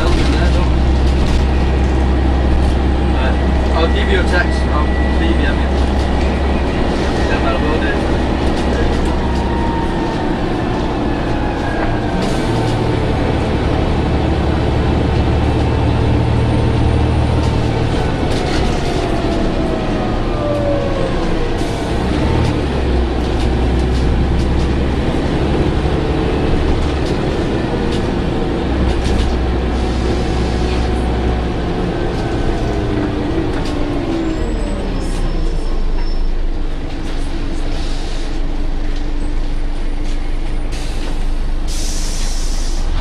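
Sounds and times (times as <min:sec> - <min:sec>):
bus diesel engine running: 0:00.0 - 0:43.0
air hissing: 0:40.7 - 0:43.0.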